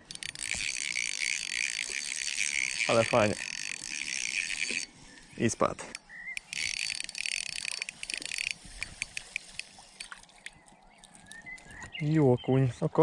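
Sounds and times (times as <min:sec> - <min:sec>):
spinning reel whirring and clicking: 0:00.0 - 0:10.2.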